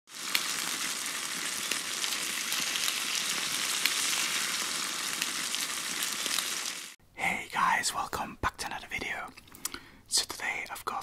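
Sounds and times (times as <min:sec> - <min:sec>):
food sizzling in a pan: 0:00.1 - 0:07.0.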